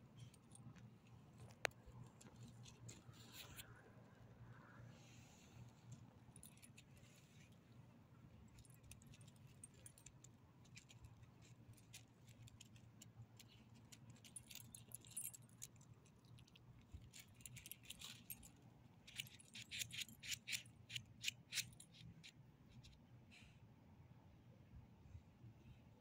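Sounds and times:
dog collar jingling and clicking: 0:13.4 - 0:18.5.

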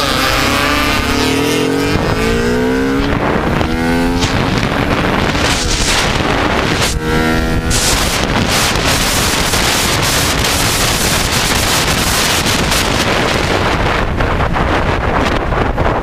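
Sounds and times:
motorcycle engine running: 0:00.0 - 0:16.0
wind buffeting microphone: 0:00.0 - 0:16.0.

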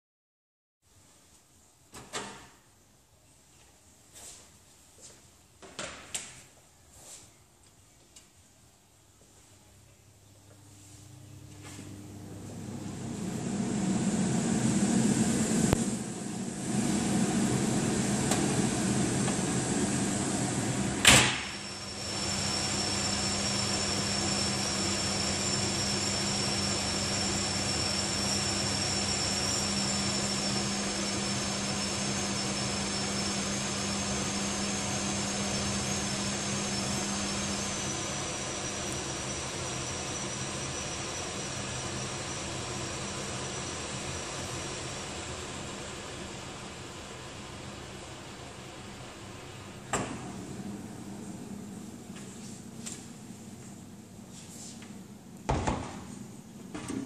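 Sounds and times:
thin high whine: 0:10.5 - 0:45.3
extractor fan rushing air: 0:11.8 - 0:39.1, 0:49.7 - 0:53.5.

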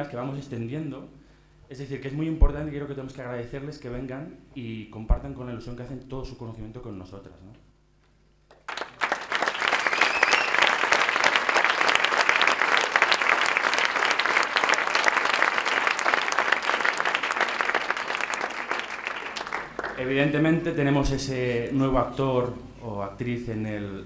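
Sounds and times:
audience applauding: 0:08.5 - 0:20.3.

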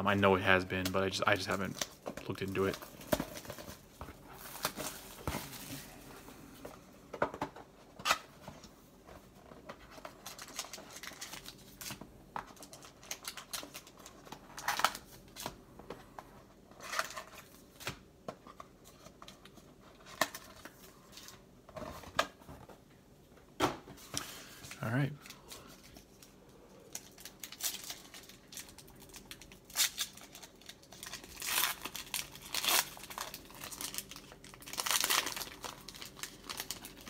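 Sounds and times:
card packs rustling: 0:00.7 - 0:06.6, 0:07.9 - 0:15.6, 0:23.9 - 0:37.0
shrink wrap crinkling and tearing: 0:09.8 - 0:15.4, 0:24.9 - 0:37.0.

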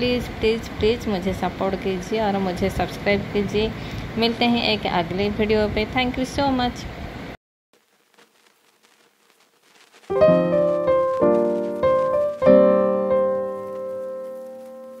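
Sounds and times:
piano-like keyboard chords: 0:10.1 - 0:15.0.

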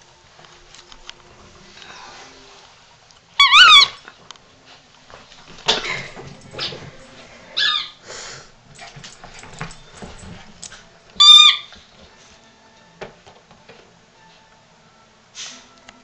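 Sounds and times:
squeaky toy squeaks: 0:03.4 - 0:04.0, 0:07.6 - 0:08.0, 0:11.2 - 0:11.7
dog movement clicks and knocks: 0:08.7 - 0:10.9.

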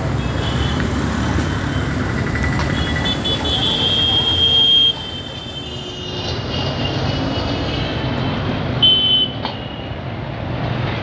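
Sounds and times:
motorbikes and scooters passing: 0:00.0 - 0:05.4.

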